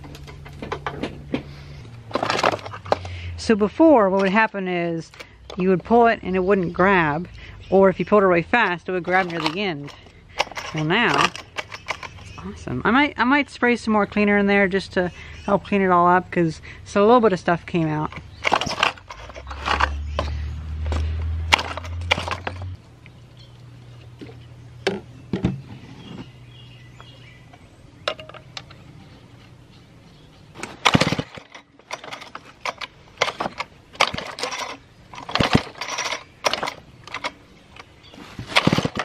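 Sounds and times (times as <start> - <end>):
knocks and clicks of handling: 0.0 - 3.2, 8.6 - 12.4, 18.0 - 23.2, 24.0 - 26.3, 27.0 - 29.6, 30.6 - 39.0
chainsaw starter cord pulls: 9.0 - 12.4, 18.1 - 22.7, 30.6 - 39.0.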